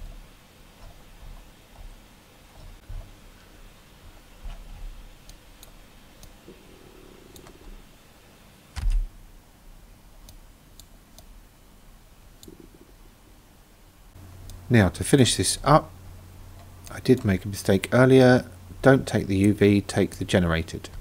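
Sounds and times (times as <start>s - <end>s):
computer mouse clicking: 7.3s - 7.8s, 12.4s - 12.8s.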